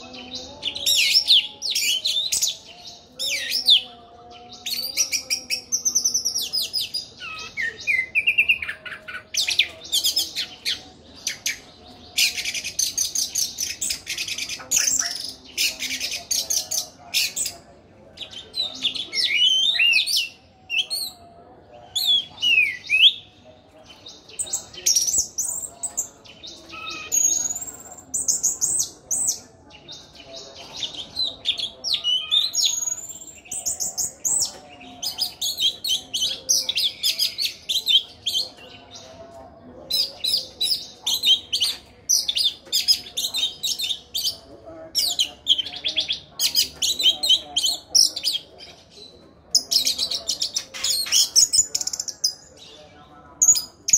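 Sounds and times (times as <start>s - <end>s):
thrush singing: 0.0s - 21.2s.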